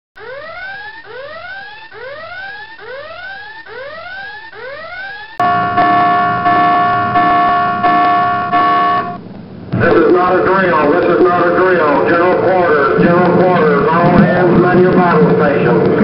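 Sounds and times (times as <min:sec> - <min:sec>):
bell-like ringing alarm: 0:00.2 - 0:09.2
whooping alarm tone: 0:00.2 - 0:09.2.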